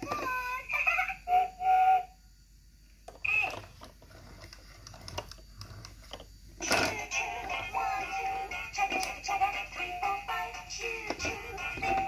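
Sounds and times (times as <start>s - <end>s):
toy electronic voice: 0.0s - 2.2s, 3.2s - 3.7s, 6.6s - 12.0s.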